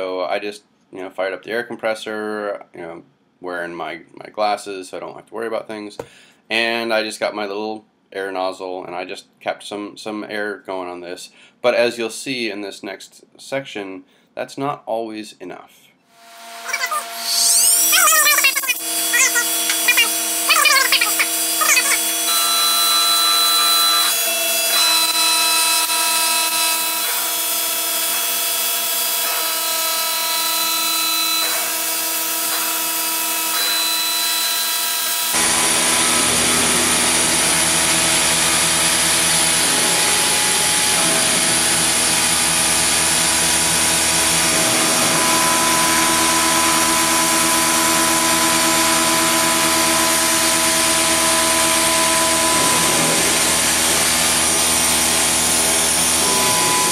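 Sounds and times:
milling machine whine: 16.2 - 56.9.

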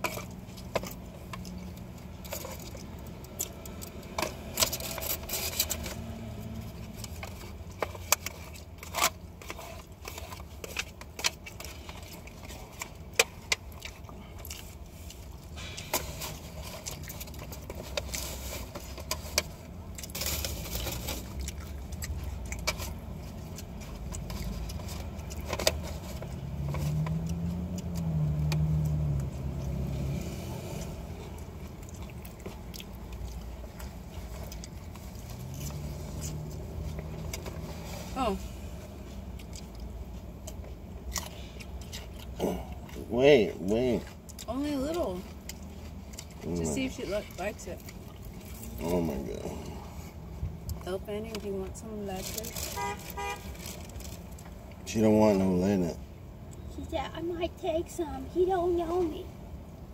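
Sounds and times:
eating: 26.9 - 37.5, 39.0 - 43.1, 45.2 - 50.8.

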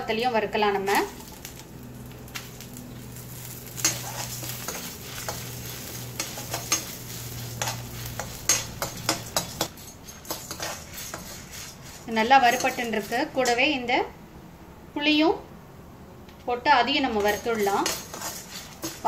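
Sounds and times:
light oil sizzle: 0.0 - 13.9, 16.4 - 19.0
metal spatula scraping a pan: 2.4 - 13.6, 17.0 - 19.0.

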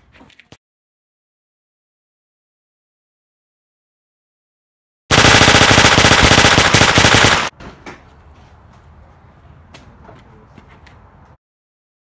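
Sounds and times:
automatic gunfire burst: 5.1 - 7.5.

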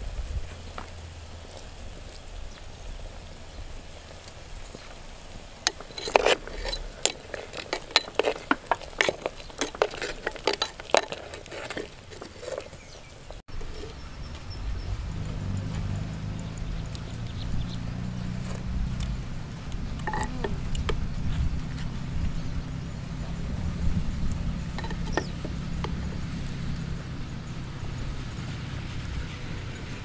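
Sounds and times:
metal spoon stirring in clay pot: 4.8 - 14.2, 18.4 - 22.5, 23.3 - 26.9.

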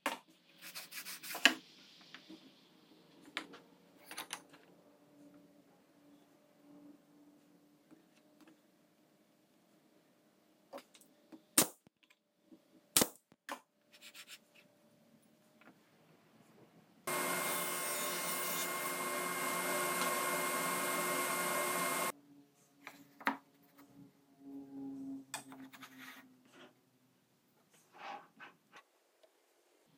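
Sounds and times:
table saw cutting plywood: 17.1 - 22.1.

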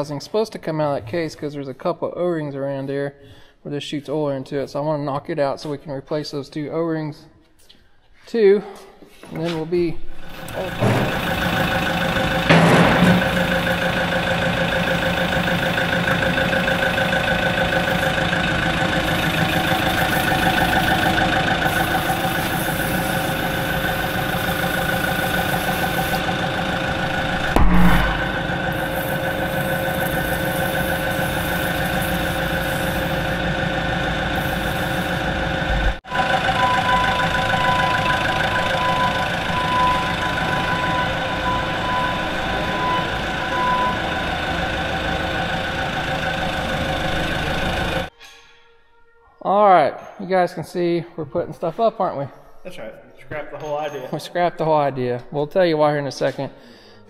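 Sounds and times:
engine idling: 10.2 - 48.1
reversing alarm beeping: 10.6 - 30.5, 36.1 - 48.1.

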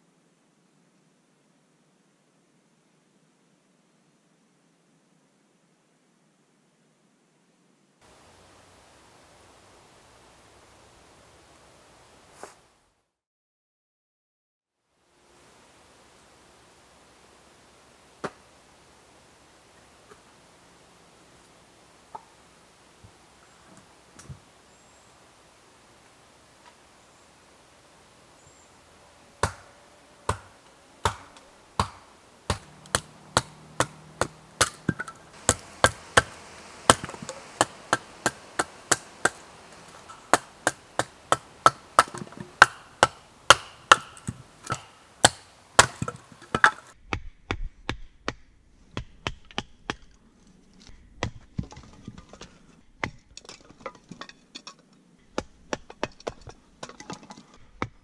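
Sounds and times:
wood cracking and splitting: 30.3 - 46.9.

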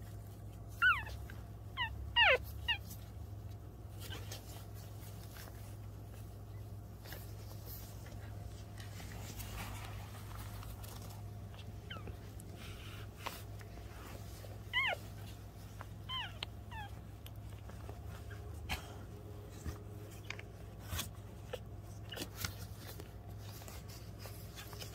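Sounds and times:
puppies squeaking: 0.7 - 3.2, 10.9 - 13.5, 14.1 - 18.6.

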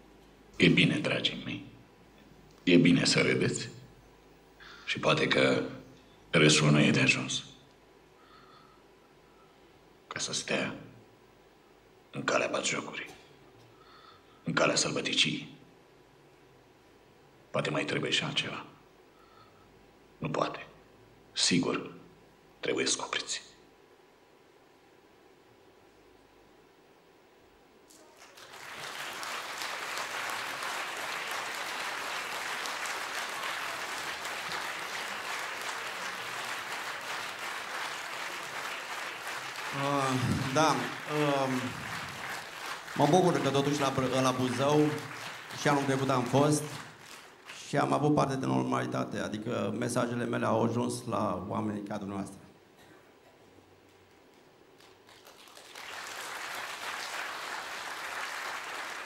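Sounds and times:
audience applauding: 27.9 - 47.7, 54.8 - 59.0.

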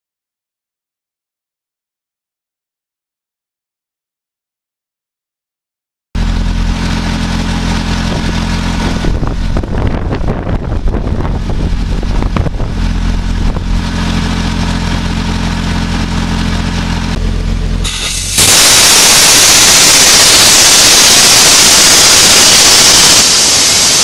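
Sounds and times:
diesel engine running: 6.2 - 24.0.

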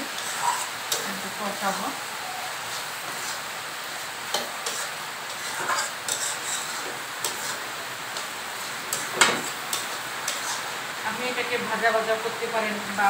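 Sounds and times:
metal spatula scraping pan: 0.0 - 1.9, 2.7 - 3.6, 4.3 - 10.8
food sizzling in pan: 0.0 - 13.0.

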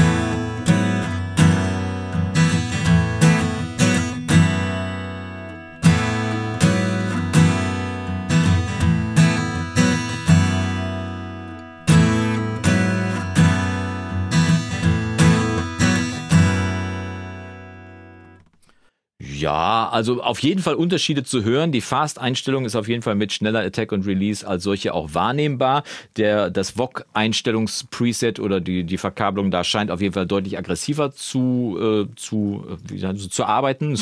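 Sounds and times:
acoustic guitar strummed hard: 0.0 - 18.4.

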